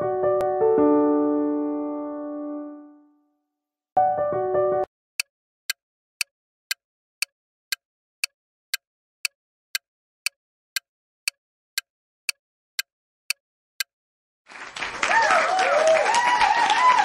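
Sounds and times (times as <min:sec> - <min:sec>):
timer ticking: 0:05.2 - 0:13.9.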